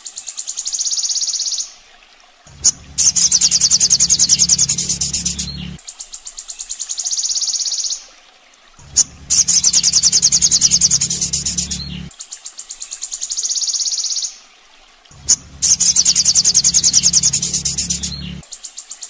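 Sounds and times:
bird buzzing trill: 2.5s - 5.8s, 8.8s - 12.1s, 15.2s - 18.4s
low hum: 2.5s - 5.8s, 8.8s - 12.1s, 15.1s - 18.4s.

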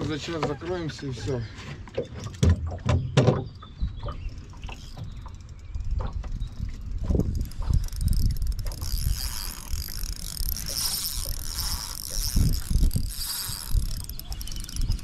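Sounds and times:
fishing reel whirring: 4.3s - 15.0s.

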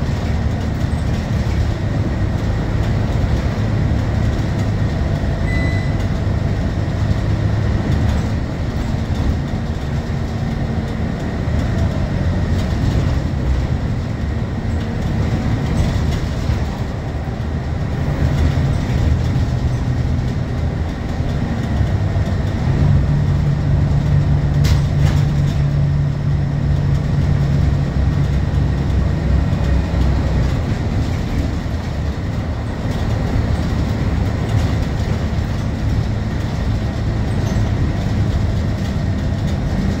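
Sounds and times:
bus diesel engine running: 0.0s - 40.0s
road and tyre noise: 0.0s - 40.0s.

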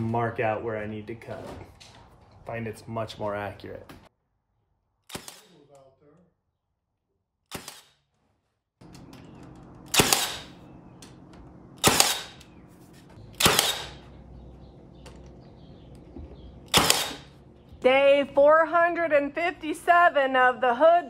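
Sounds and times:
nail gun firing into wood: 5.1s - 5.6s, 7.5s - 8.0s, 9.9s - 10.6s, 11.8s - 12.4s, 13.4s - 14.1s, 16.7s - 17.3s.

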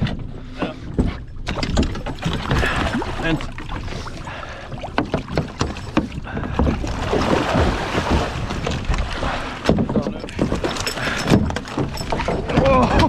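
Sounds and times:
knocks against boat hull: 4.8s - 6.9s, 9.6s - 13.0s
fish splashing at surface: 6.6s - 9.6s.

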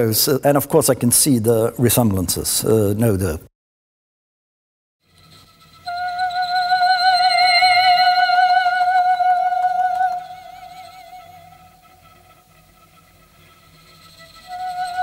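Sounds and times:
faint wavering high tones: 5.6s - 12.4s, 13.7s - 15.0s.

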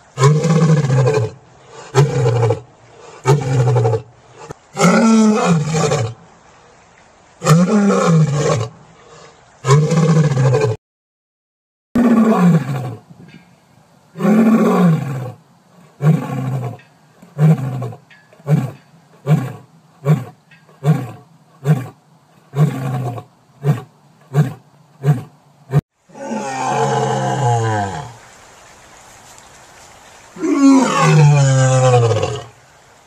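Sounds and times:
lion roaring: 0.2s - 6.2s, 7.4s - 8.7s, 9.6s - 10.8s, 12.0s - 13.0s, 14.2s - 28.2s, 30.4s - 32.5s
second lion roaring: 0.2s - 6.2s, 7.4s - 8.8s, 9.6s - 10.8s, 12.0s - 13.0s, 14.2s - 28.2s, 30.4s - 32.6s.

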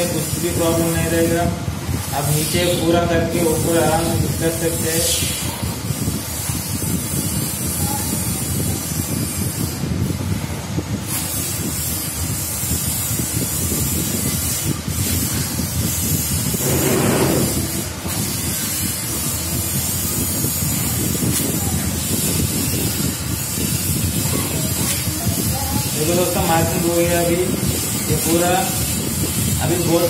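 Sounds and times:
steady hissing: 11.1s - 30.0s.

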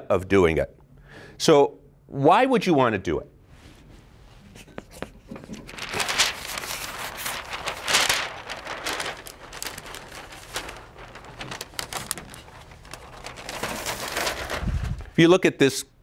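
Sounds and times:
paper sheets rustling and crinkling: 3.7s - 15.2s.

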